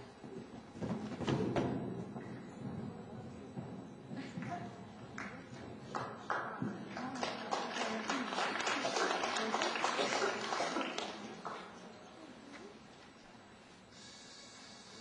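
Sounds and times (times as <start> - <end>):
spectators clapping: 5.2 - 11.8.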